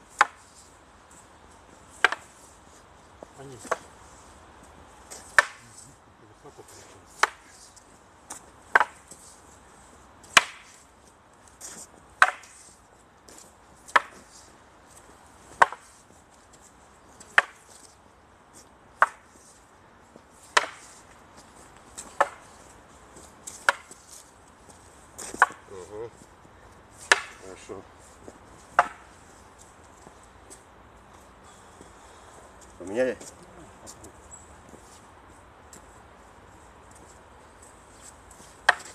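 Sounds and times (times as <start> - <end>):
wooden staffs clacking: 0.2 - 0.5, 2.0 - 2.4, 5.1 - 5.8, 7.2 - 9.3, 10.2 - 10.9, 11.6 - 14.3, 15.5 - 16.0, 17.2 - 17.9, 19.0 - 19.4, 20.5 - 24.3, 25.2 - 25.7, 27.0 - 27.4, 28.2 - 29.2, 37.0 - 38.9.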